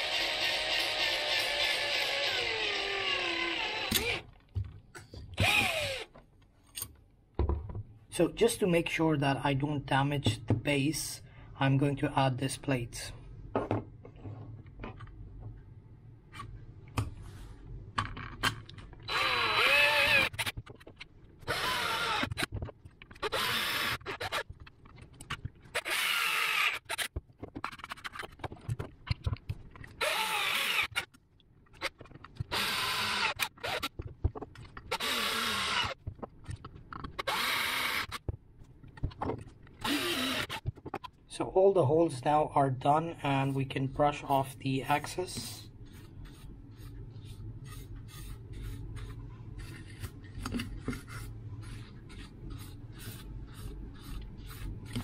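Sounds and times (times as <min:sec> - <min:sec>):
electric drill boring through metal: 0:00.0 - 0:04.3, 0:05.4 - 0:06.1, 0:19.1 - 0:20.5, 0:21.5 - 0:22.5, 0:23.2 - 0:24.4, 0:25.8 - 0:27.1, 0:30.0 - 0:31.0, 0:32.5 - 0:33.9, 0:34.9 - 0:36.0, 0:37.2 - 0:38.2, 0:39.8 - 0:40.6.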